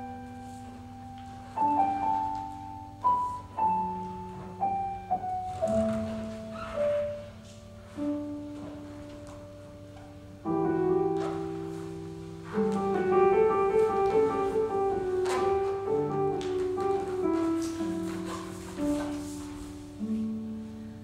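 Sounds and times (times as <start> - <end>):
slow piano music: 0.0 - 21.0.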